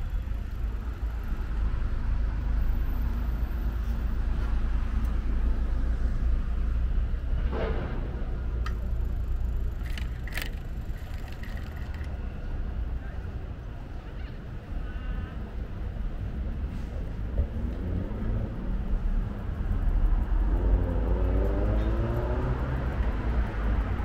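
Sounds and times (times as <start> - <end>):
city street traffic rumble: 0.0 - 24.0
sharp clicks: 9.7 - 12.2.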